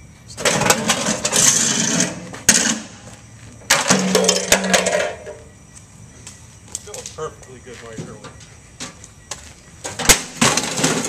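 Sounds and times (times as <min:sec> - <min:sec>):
sharp crack: 0:10.0 - 0:11.0.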